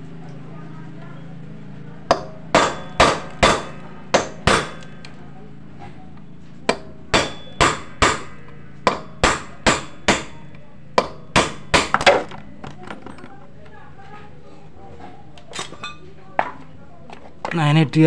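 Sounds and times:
hammer striking metal with ring: 0:02.1 - 0:05.0, 0:06.7 - 0:12.2.

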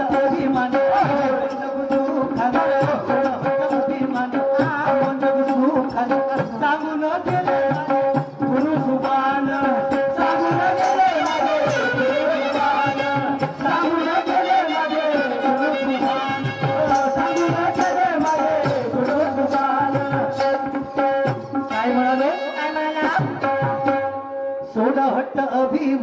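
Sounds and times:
hand drums beating: 0:00.0 - 0:14.4, 0:15.4 - 0:24.2.

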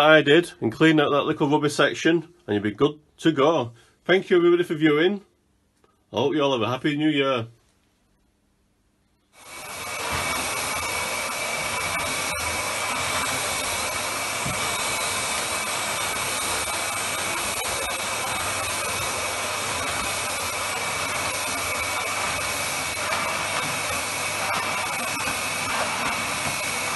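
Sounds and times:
vacuum cleaner running: 0:09.4 - 0:26.9.

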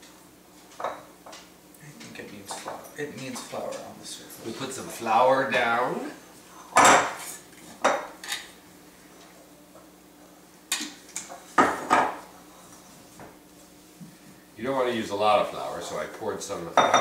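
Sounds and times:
glass jar clinking on countertop: 0:16.8 - 0:17.0.

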